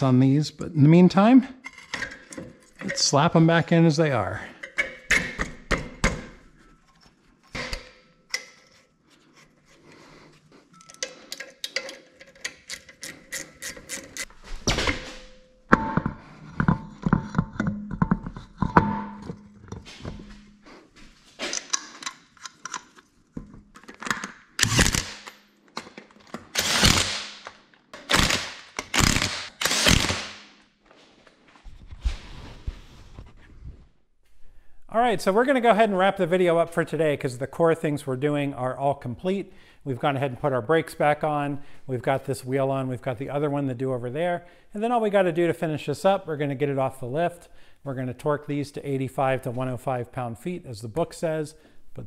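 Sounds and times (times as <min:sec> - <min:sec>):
metal knocks and clunks: 0:04.4 - 0:06.4, 0:14.3 - 0:20.7.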